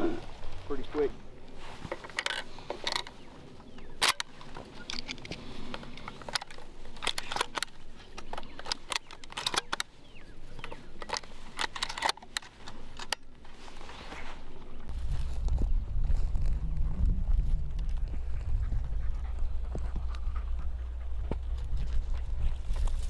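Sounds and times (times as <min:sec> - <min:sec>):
shotgun shells clicking into magazine: 0:06.0 - 0:09.9, 0:11.0 - 0:13.3.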